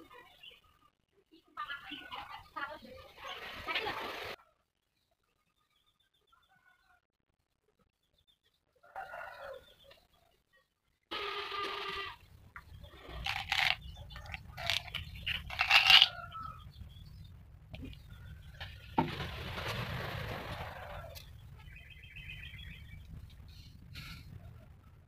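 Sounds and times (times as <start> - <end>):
rooster crowing: 8.8 - 9.6.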